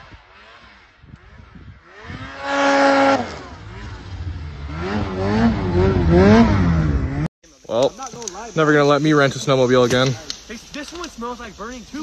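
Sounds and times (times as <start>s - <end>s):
snowmobile engine revving: 0.0s - 7.3s.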